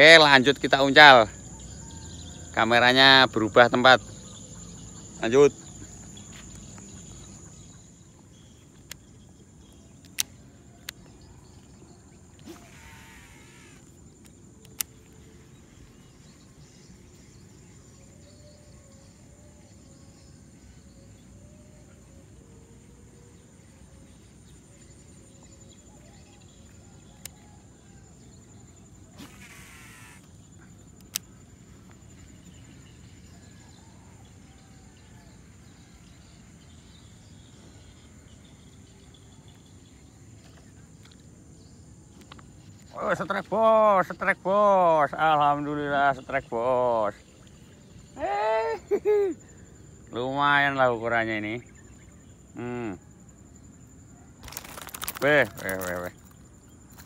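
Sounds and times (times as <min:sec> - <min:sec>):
low outdoor background hum: 0:00.0 - 0:57.0
sharp clicks: 0:10.0 - 0:11.1, 0:13.8 - 0:15.0, 0:31.0 - 0:31.3
high-pitched insect buzzing: 0:12.4 - 0:16.4, 0:29.1 - 0:31.2.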